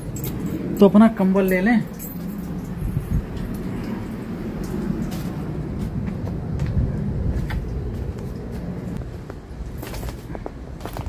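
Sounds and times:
footsteps: 4.7 - 11.0.

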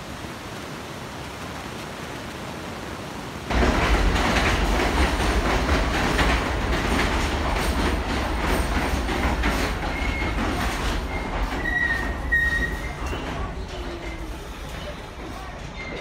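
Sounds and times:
subway train rumbling: 3.4 - 16.0
wheels clicking over rail joints: 3.5 - 16.0
high wheel squeal: 11.0 - 13.2.

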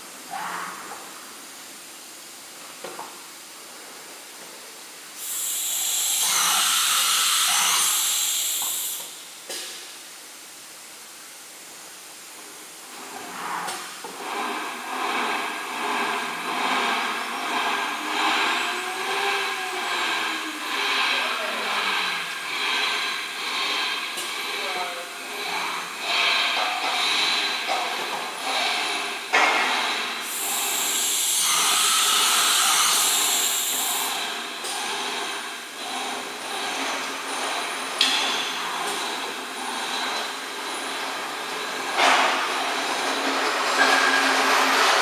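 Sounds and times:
compressed air hissing: 5.2 - 9.8, 12.9 - 36.0
motors whining: 13.0 - 45.0.

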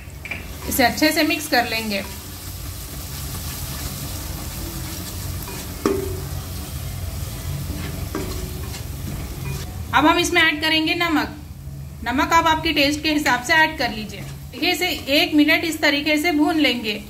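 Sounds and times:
masala sizzling in pan: 0.0 - 17.0
spatula stirring in pan: 0.4 - 9.7, 14.2 - 15.4
spatula knocking on pan: 5.8 - 6.4.

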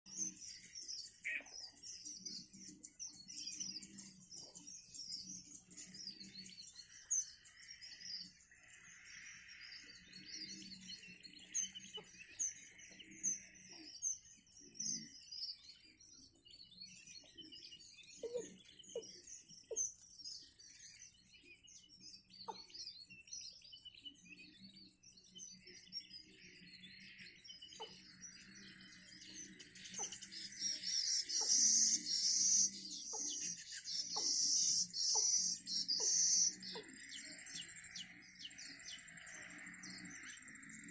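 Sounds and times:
lower bird calls: 0.1 - 14.0, 27.7 - 39.2
rapid high bird chirps: 29.5 - 38.9.

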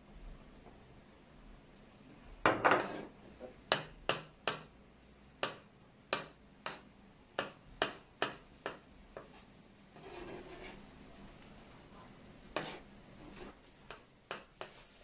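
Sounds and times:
knife chopping on wooden board: 5.4 - 6.8.

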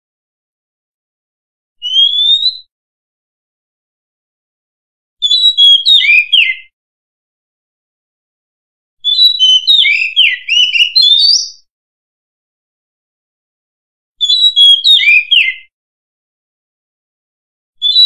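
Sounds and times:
bird singing whistled notes: 1.8 - 2.7, 5.2 - 6.8, 9.0 - 11.7, 14.2 - 15.7, 17.8 - 18.0.

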